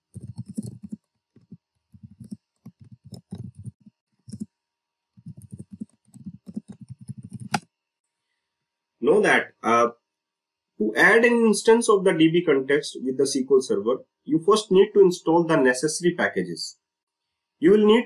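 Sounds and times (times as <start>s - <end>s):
typing on a computer keyboard: 0.1s - 4.5s, 5.2s - 7.6s.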